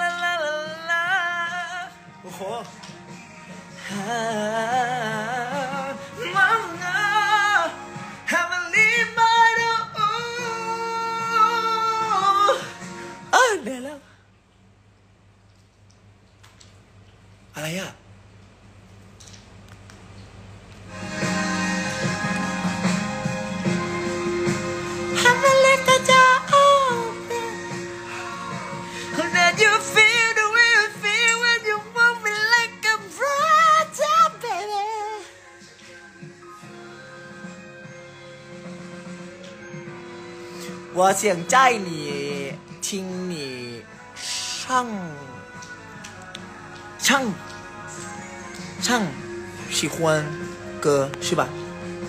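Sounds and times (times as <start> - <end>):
backing track music: 0.0 - 13.6, 20.8 - 52.0
man singing: 0.0 - 14.1, 24.8 - 37.5, 40.7 - 52.0.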